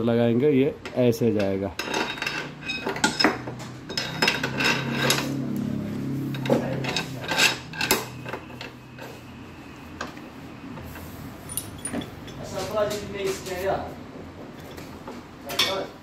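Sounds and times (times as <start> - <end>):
steel clinks and clicks: 11.5 - 12.5.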